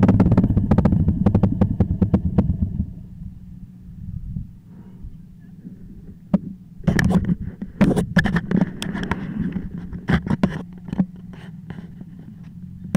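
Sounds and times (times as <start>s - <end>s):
motorcycle engine idling: 0.0s - 6.8s.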